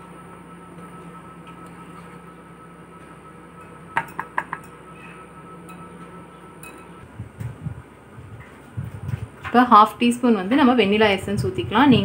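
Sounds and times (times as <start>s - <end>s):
low steady hum: 0.0s - 12.0s
utensils clinking against glass bowl: 3.6s - 7.0s.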